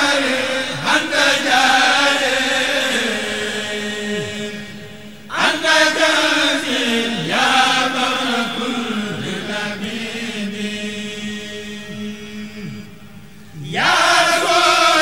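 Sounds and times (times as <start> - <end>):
low held drone tone: 0.0 - 14.6
person chanting: 0.0 - 15.0.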